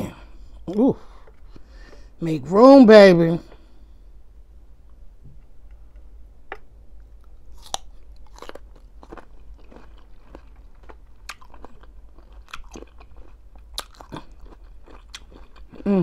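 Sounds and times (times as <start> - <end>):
crunching and chewing cucumber: 7.2 - 16.0.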